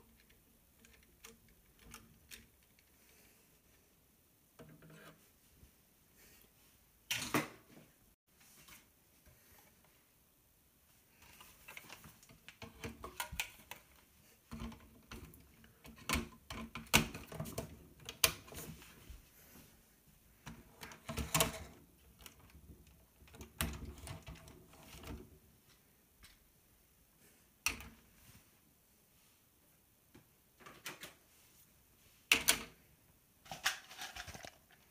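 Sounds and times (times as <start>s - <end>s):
plastic parts clicking and clattering: 0.0s - 3.3s, 11.2s - 18.8s, 20.4s - 26.4s, 33.4s - 34.9s.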